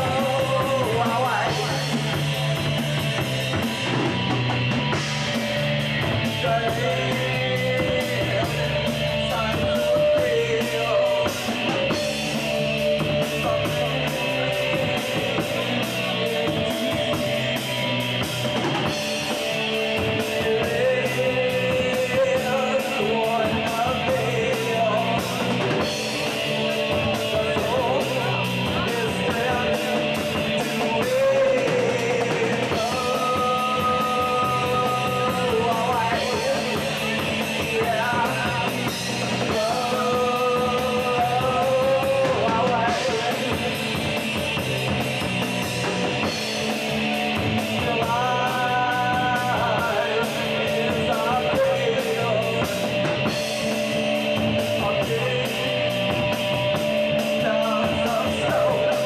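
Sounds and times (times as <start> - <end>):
drum kit: 0.0 - 59.0
electric guitars: 0.0 - 59.0
person singing long notes: 6.0 - 44.7.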